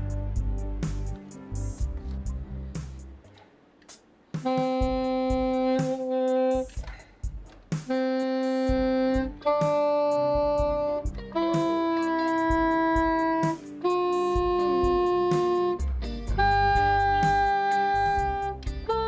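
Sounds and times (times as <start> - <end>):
plastic saxophone long notes: 4.4 - 7.0, 7.7 - 19.0.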